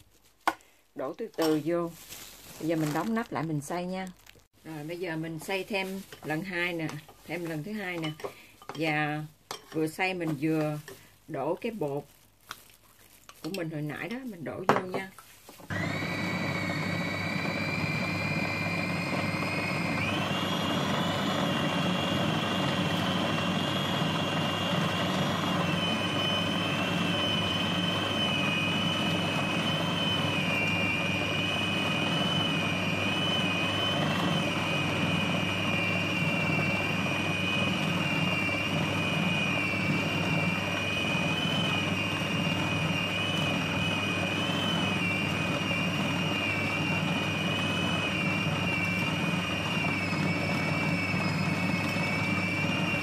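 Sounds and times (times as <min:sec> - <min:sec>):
food processor grinding meat: 0:15.7 - 0:53.0.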